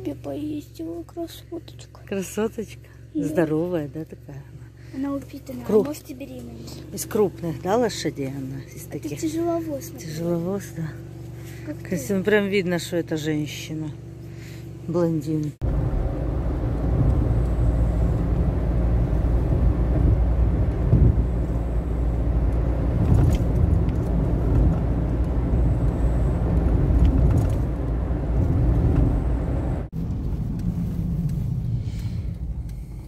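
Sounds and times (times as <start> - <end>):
engine and tyre rumble in car: 0.0 - 33.0.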